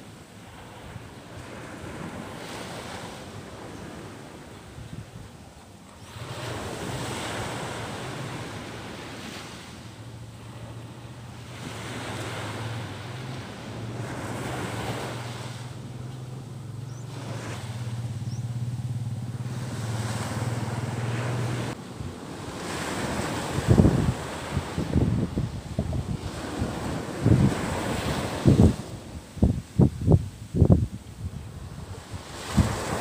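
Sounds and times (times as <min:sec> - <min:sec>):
surf washing onto beach: 0:00.0 - 0:33.0
wind buffeting microphone: 0:00.5 - 0:33.0
low steady hum: 0:09.9 - 0:22.0.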